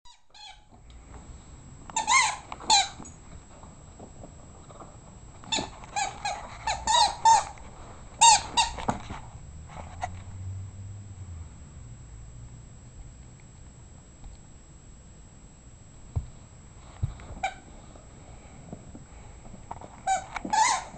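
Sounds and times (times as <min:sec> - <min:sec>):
squeak toy squeaking: 0:00.1 - 0:00.7, 0:02.0 - 0:03.0, 0:05.5 - 0:07.6, 0:08.2 - 0:08.8, 0:20.1 - 0:20.9.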